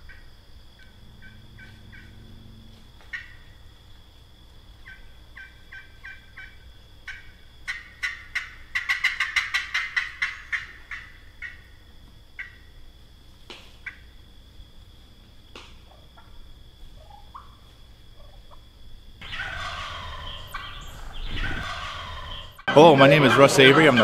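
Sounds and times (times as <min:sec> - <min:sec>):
turkey call yelps: 0:00.0 - 0:02.4, 0:03.0 - 0:03.5, 0:04.8 - 0:11.7, 0:15.9 - 0:17.6, 0:19.2 - 0:24.0.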